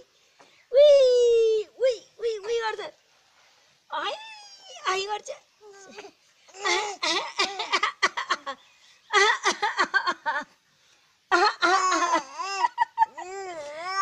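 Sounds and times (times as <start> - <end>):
baby squealing and giggling: 4.1 - 5.0
baby crying: 11.7 - 14.0.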